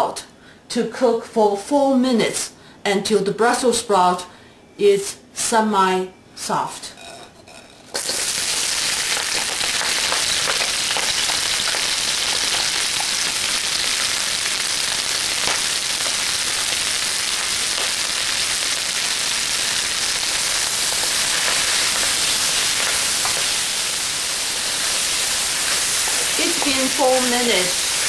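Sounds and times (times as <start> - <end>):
sprouts sizzling in hot oil: 7.9 - 28.0.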